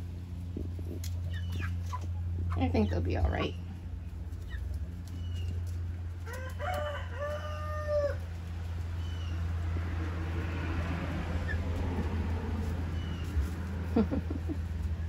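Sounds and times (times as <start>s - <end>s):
steady low hum: 0.0s - 6.3s
chicks peeping: 0.2s - 10.5s, 11.3s - 15.0s
rooster crowing: 6.2s - 8.3s.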